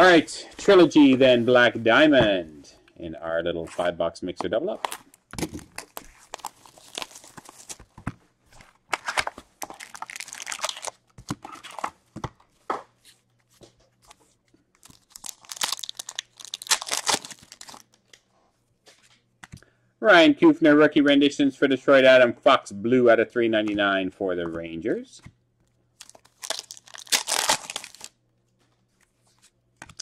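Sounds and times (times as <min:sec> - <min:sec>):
wrapper tearing: 0:04.9 - 0:07.8, 0:08.9 - 0:11.8, 0:14.8 - 0:17.9, 0:26.0 - 0:28.1.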